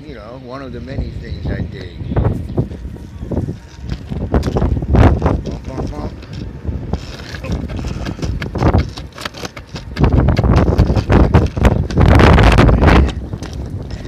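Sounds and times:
skateboard wheels rolling on asphalt: 2.4s - 14.0s
wheels knocking over cracks: 3.8s - 14.0s.

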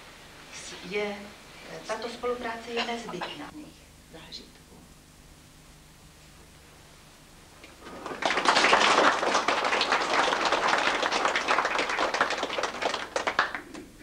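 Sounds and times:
people applauding: 7.8s - 14.0s.

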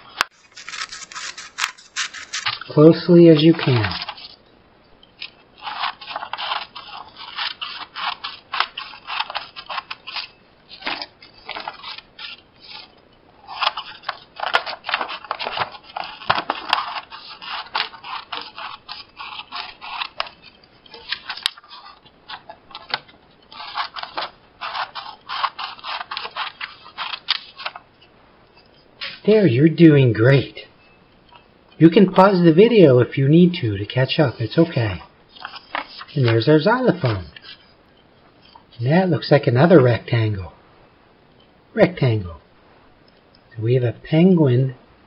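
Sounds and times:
scissors cutting paper: 0.0s - 4.3s, 5.6s - 27.8s, 34.3s - 37.7s
paper rustling: 0.0s - 4.4s, 5.2s - 27.9s, 29.0s - 29.3s, 34.1s - 37.8s.

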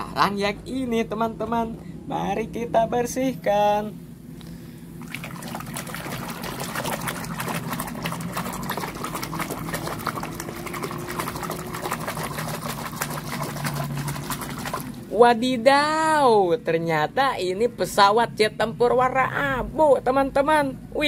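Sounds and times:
water splashing in basin: 5.0s - 15.2s.

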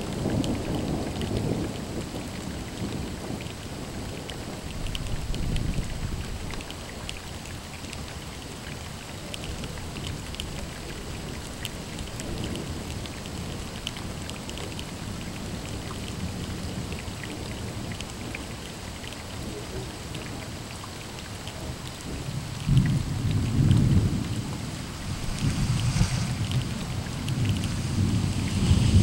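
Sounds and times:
rain drops ticking: 0.0s - 29.0s
distant thunder rumble: 19.4s - 29.0s.

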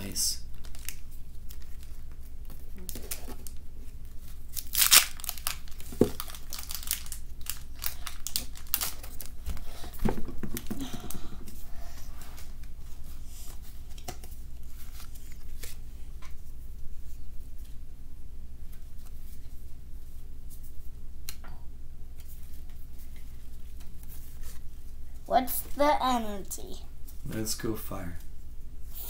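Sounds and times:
foil wrapper tearing and crinkling: 0.6s - 3.6s, 4.2s - 9.5s.

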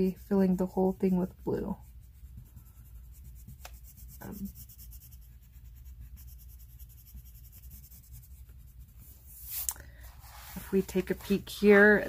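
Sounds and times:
pencil scratching on paper: 0.0s - 9.6s.

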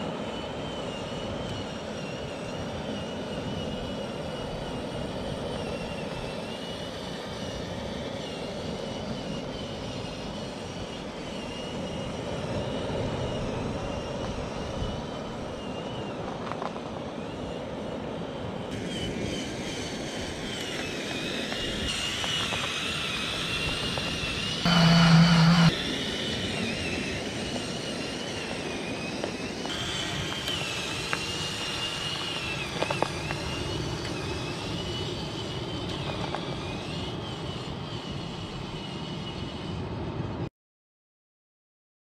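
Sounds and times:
toy car motors whining: 0.0s - 40.0s
loud buzzing tone: 24.6s - 25.9s.

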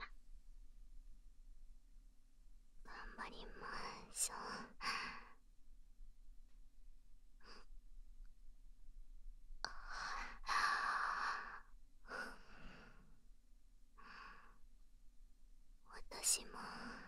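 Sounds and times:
woman breathing softly: 2.9s - 5.4s, 7.4s - 7.8s, 9.7s - 13.2s, 14.0s - 14.6s, 16.2s - 17.0s.

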